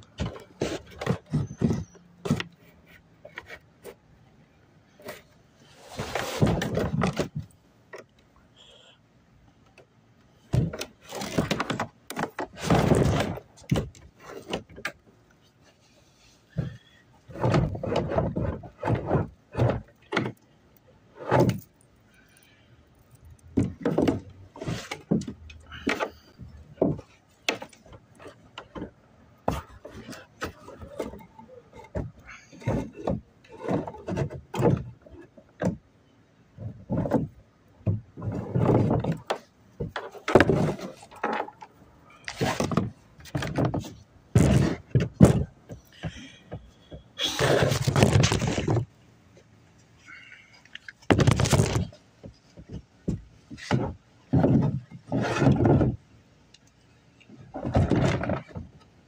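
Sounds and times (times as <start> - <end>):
microphone handling rustling: 38.1 - 48.9, 50.8 - 56.0.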